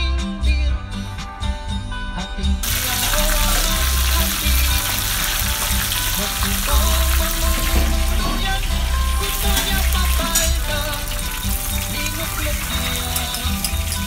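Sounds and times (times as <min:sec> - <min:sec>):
light background music: 0:00.0 - 0:14.0
fish sizzling in hot oil: 0:02.6 - 0:14.0.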